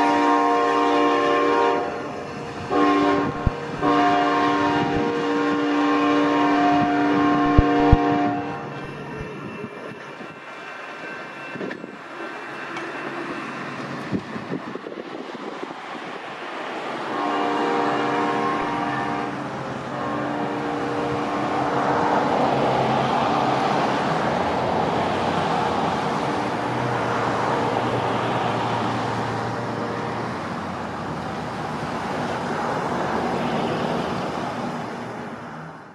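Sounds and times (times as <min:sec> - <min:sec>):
distant train air horn blasts: 0:00.0 - 0:09.0, 0:17.1 - 0:22.2
steady rushing noise: 0:01.9 - 0:03.9, 0:06.8 - 0:10.5.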